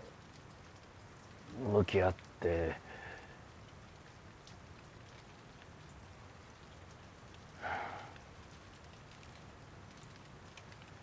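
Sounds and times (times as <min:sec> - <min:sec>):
light rain pattering: 0:00.0 - 0:11.0
short breath-like sound: 0:07.6 - 0:08.2.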